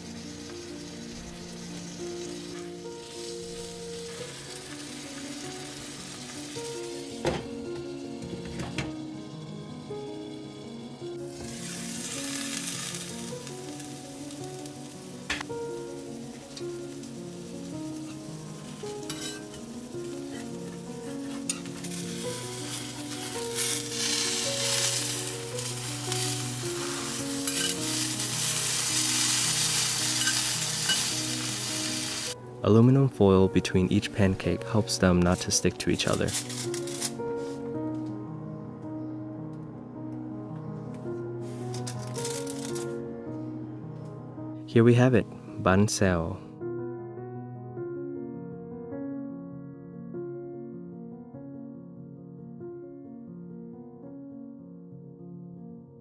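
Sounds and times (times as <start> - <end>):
batter sizzling in a frying pan: 0.0 - 8.4, 11.2 - 32.4, 36.1 - 37.5
background music with held notes: 0.0 - 56.0.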